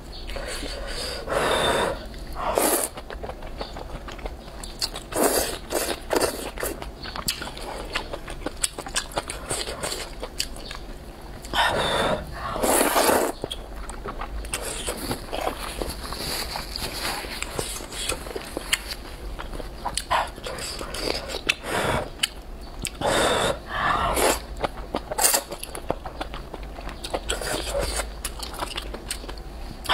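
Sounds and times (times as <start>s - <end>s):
person slurping noodles: 0.6s - 3.0s, 11.6s - 13.4s, 23.0s - 24.5s
wet chewing: 2.0s - 29.9s.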